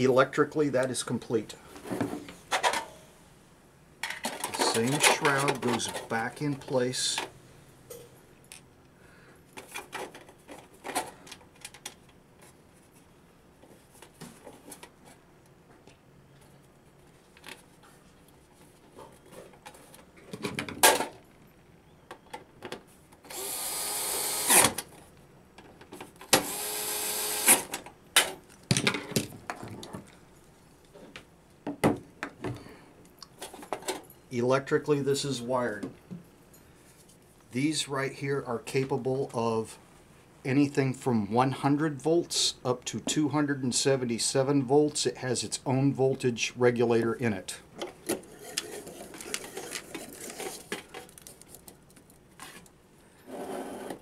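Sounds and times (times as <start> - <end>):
cordless screwdriver running: 23.3 - 24.7, 26.4 - 27.6.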